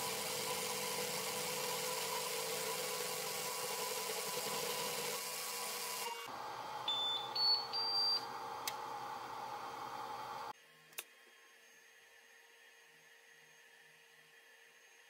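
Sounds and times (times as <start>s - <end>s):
printer humming: 0.0s - 7.3s
short rising beeps: 6.9s - 8.2s.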